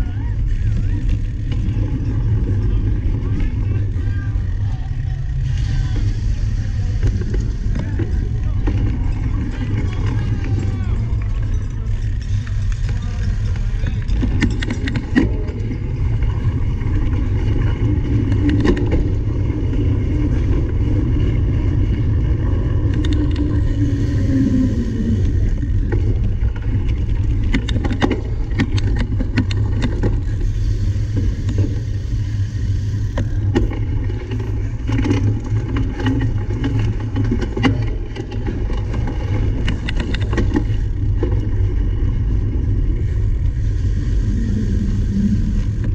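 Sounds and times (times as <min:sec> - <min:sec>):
wind rumble on microphone: 0:00.0 - 0:45.9
bike knocks and rattles: 0:06.7 - 0:23.7, 0:25.6 - 0:30.5, 0:33.1 - 0:43.0.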